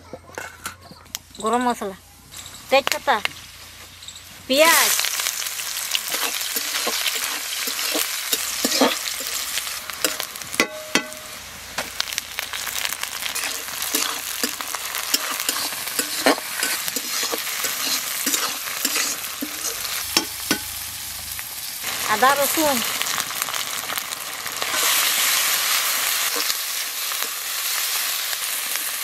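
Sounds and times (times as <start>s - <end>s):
vegetables sizzling in oil: 1.6s - 29.0s
metal spatula scraping pan: 6.0s - 11.3s, 13.2s - 21.4s.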